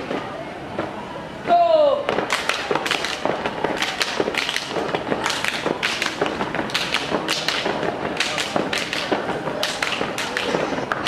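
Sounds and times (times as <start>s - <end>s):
rhythmic percussive claps and stamps: 2.1s - 11.0s.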